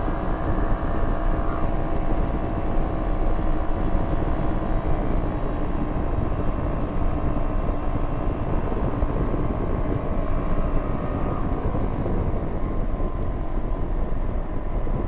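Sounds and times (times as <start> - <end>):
aircraft engine droning: 0.0 - 15.0.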